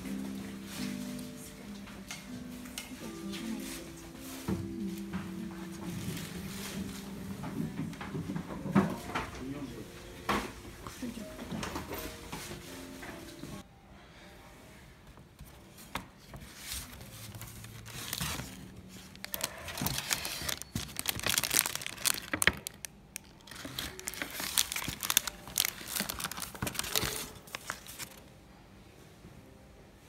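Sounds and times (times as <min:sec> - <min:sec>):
paper and plastic bags crinkling: 0:03.0 - 0:08.2, 0:16.3 - 0:28.3.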